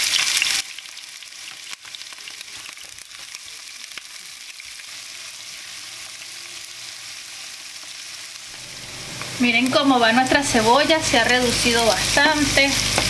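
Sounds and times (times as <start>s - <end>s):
small crackles: 0.0s - 9.8s
onions sizzling in oil: 0.0s - 13.0s.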